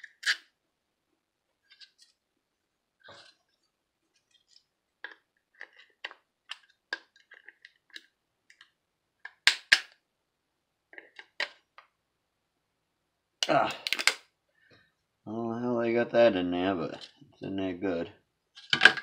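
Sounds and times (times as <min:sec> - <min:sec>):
loud plastic snaps: 0:09.3 - 0:10.0, 0:13.8 - 0:14.3
plastic housing cracking: 0:13.8 - 0:14.3, 0:18.6 - 0:19.0.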